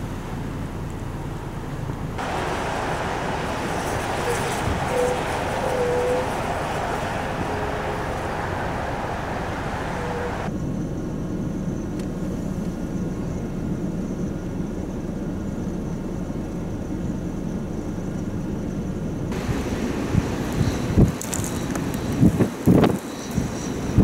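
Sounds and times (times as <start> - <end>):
wind blowing across microphone: 2.2 - 10.5, 19.3 - 24.0.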